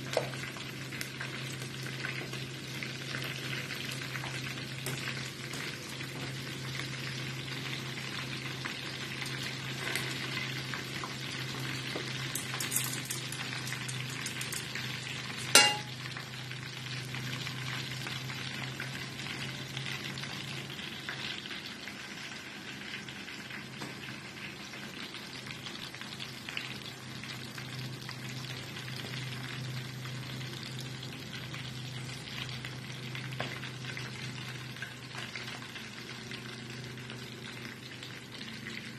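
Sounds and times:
chicken frying in hot oil: 0.0s - 38.9s
sharp clink: 15.5s - 16.0s.

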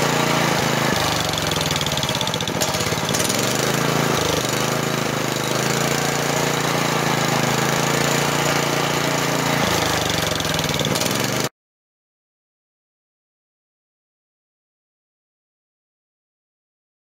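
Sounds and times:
small engine running: 0.0s - 11.5s.

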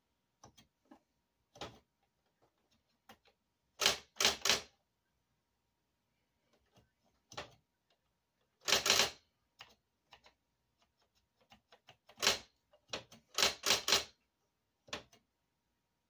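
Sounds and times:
electric typewriter clacking: 8.7s - 9.2s, 13.3s - 14.1s.

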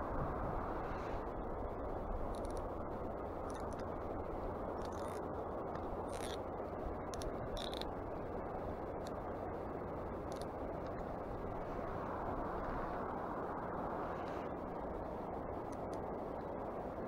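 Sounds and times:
faint high ticks: 2.2s - 2.7s, 15.6s - 16.1s.

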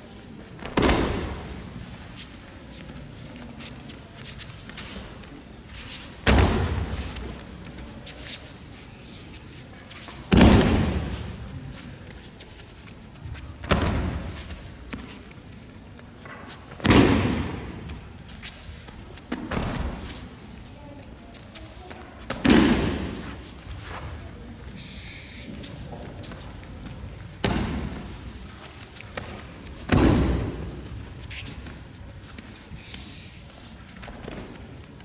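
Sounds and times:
feet shuffling on mat: 22.9s - 34.9s.

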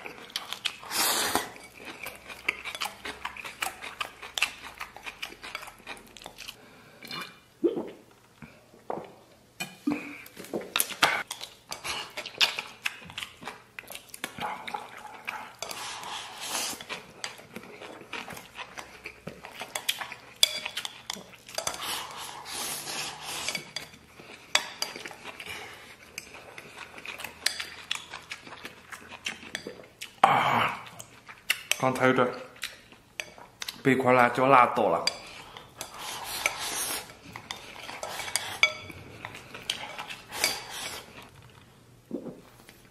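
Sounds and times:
chewing: 0.0s - 7.4s, 10.3s - 31.8s, 32.5s - 33.8s, 35.1s - 42.9s
chopsticks scraping ceramic bowl: 35.0s - 41.3s.

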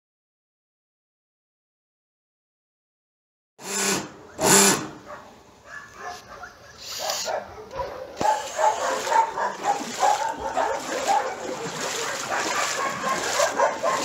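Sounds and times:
high-pitched barks and yelps: 4.2s - 14.0s
dogs barking: 4.9s - 14.0s.

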